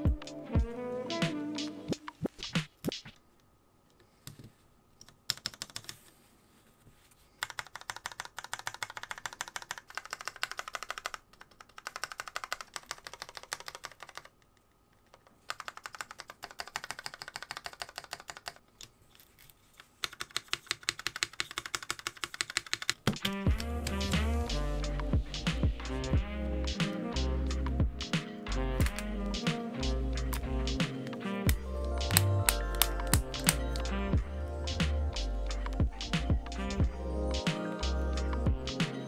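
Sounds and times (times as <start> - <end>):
keyboard keys clicking: 5.0 - 6.0, 7.4 - 14.3, 14.9 - 18.6, 20.0 - 24.0, 28.7 - 29.2, 30.2 - 33.9.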